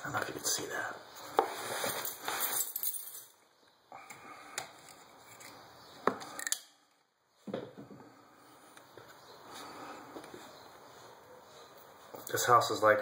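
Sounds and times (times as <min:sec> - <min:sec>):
handling noise rustling: 0:01.2 - 0:03.3.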